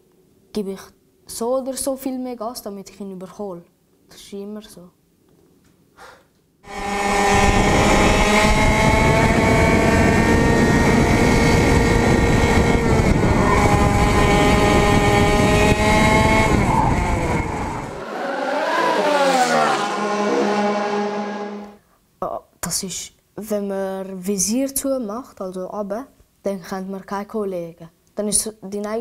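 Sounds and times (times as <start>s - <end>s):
wind noise: 6.7s - 18.0s
kart engine revving: 6.7s - 21.8s.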